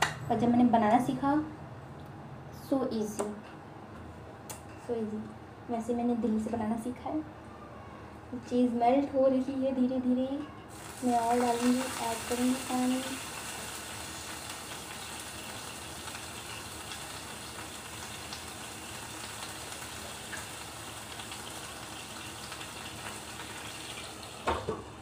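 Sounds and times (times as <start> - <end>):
water sizzling in a frying pan: 10.7 - 25.0.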